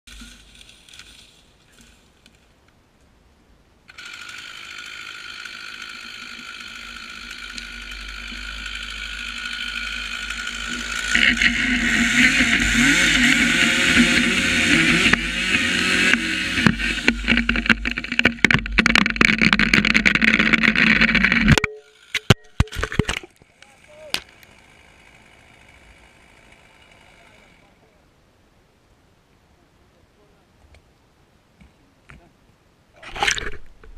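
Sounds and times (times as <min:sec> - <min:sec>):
chainsaw cutting wood: 0:03.9 - 0:27.8.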